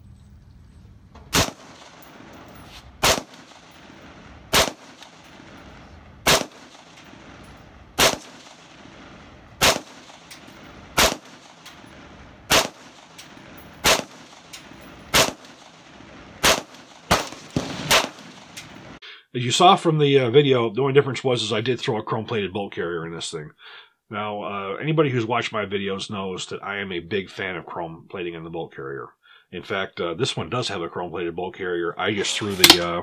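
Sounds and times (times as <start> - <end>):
rifle single shots: 1.2 - 18.9.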